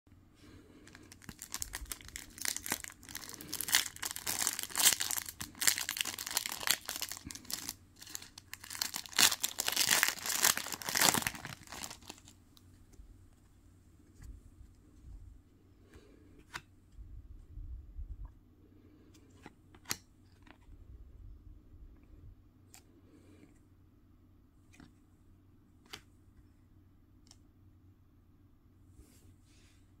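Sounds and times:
foil wrapper crinkling and tearing: 0:00.9 - 0:12.3.

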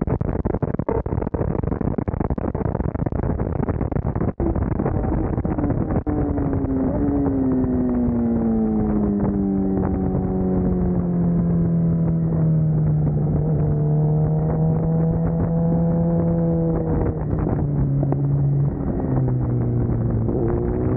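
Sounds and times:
sport bike engine revving: 0:06.0 - 0:11.9, 0:12.8 - 0:20.9.

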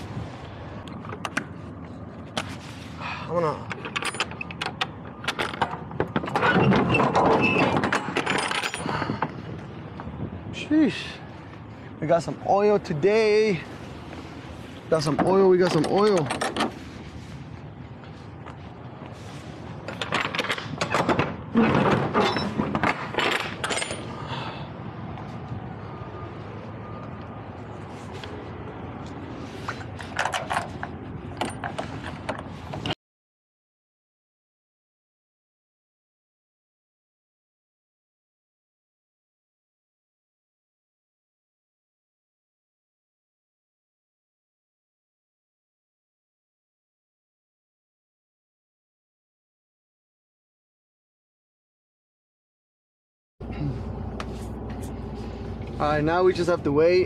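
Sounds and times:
road noise: 0:00.0 - 0:33.0, 0:53.4 - 0:57.0
metal clinks and rattles: 0:03.7 - 0:06.6, 0:07.4 - 0:09.3, 0:22.2 - 0:24.2
truck engine rumble: 0:53.4 - 0:57.0.

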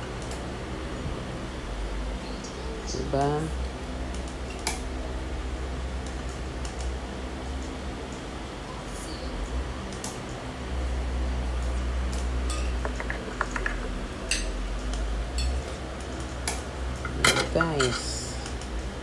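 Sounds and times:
steady low hum: 0:00.0 - 0:19.0
spoon clinking on metal pot: 0:17.0 - 0:18.2.

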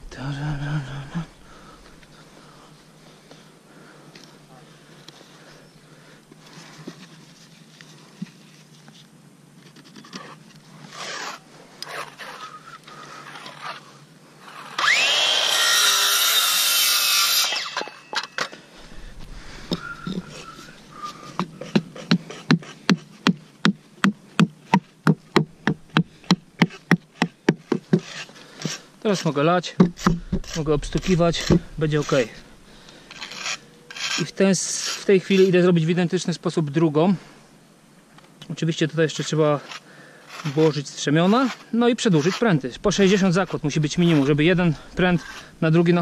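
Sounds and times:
power saw whining: 0:14.4 - 0:21.7
hammer striking wood: 0:29.8 - 0:30.5.

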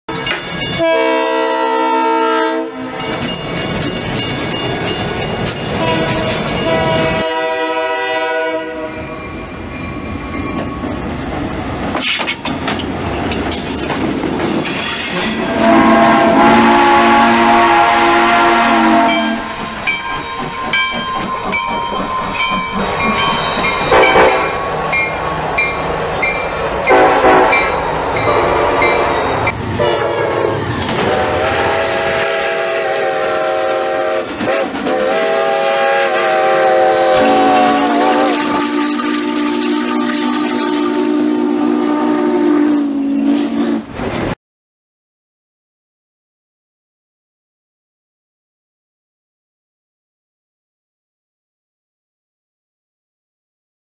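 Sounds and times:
locomotive air horn blasts: 0:00.8 - 0:03.2, 0:05.8 - 0:09.1, 0:15.2 - 0:19.6, 0:23.9 - 0:25.0, 0:26.6 - 0:43.9
steam locomotive whistle: 0:00.8 - 0:03.3, 0:05.8 - 0:09.3, 0:15.1 - 0:44.0
train wheels clicking on rails: 0:11.8 - 0:15.6, 0:19.1 - 0:29.8, 0:30.7 - 0:31.9, 0:33.8 - 0:36.2.

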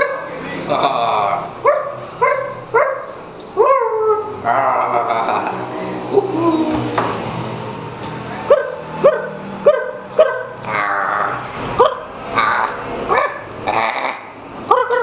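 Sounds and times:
dog-like barks and yips: 0:01.6 - 0:04.3, 0:08.5 - 0:10.6, 0:11.8 - 0:13.5, 0:14.7 - 0:15.0.

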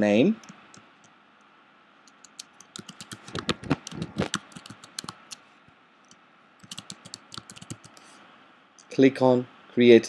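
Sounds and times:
typing on computer keyboard: 0:02.1 - 0:05.4, 0:06.6 - 0:08.0.

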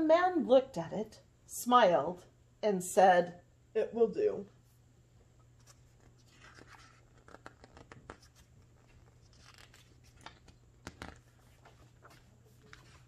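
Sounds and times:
page turning: 0:05.6 - 0:13.0
paper pages rustling: 0:05.6 - 0:13.0.

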